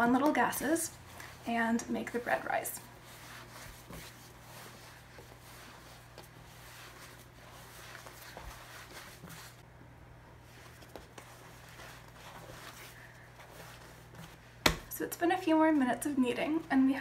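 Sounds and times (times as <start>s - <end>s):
dough slapping on counter: 13.7s - 15.0s.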